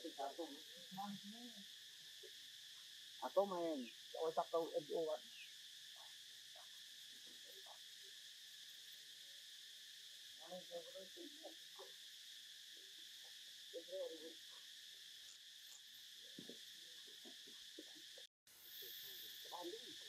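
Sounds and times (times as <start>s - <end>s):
faint insect drone: 0.0s - 20.0s.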